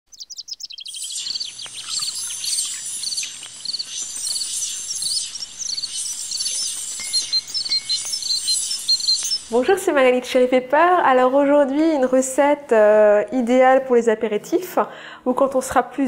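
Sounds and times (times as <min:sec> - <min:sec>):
small birds chirping: 0:00.1 - 0:10.2
steady background hiss: 0:00.4 - 0:15.3.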